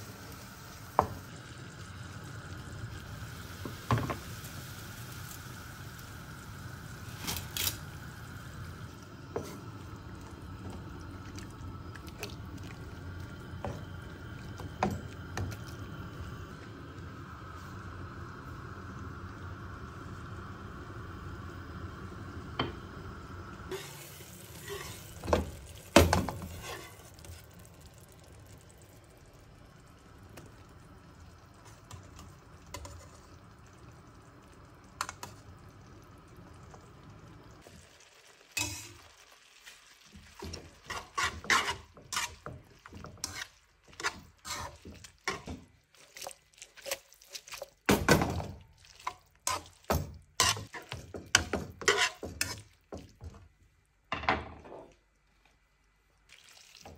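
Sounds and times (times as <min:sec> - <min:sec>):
scallions simmering in wok: 0:00.0 - 0:56.9
metal utensil scraping pan: 0:23.7 - 0:25.2, 0:38.6 - 0:39.1, 0:40.4 - 0:45.6, 0:49.0 - 0:52.7.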